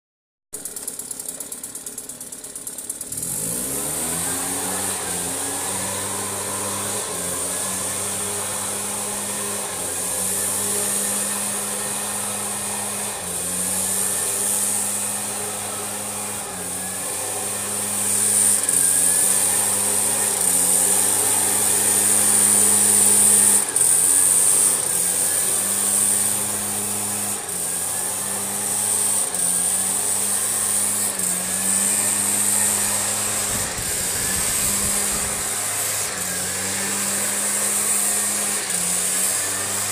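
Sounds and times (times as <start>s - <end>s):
leaf blower engine: 0.6s - 39.9s
rush of air: 33.0s - 35.7s.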